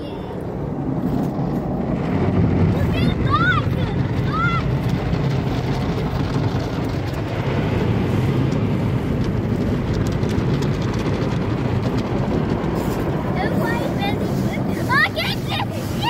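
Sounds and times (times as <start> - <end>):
water spraying: 2.4 - 16.0
car wash brushes scrubbing: 2.7 - 16.0.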